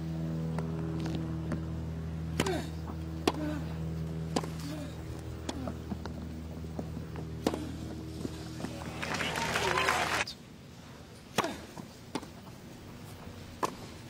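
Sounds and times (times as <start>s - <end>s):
steady low hum: 0.0s - 14.0s
tennis ball struck by rackets: 2.3s - 3.5s, 4.3s - 4.7s, 13.6s - 13.9s
player grunting: 2.4s - 2.8s.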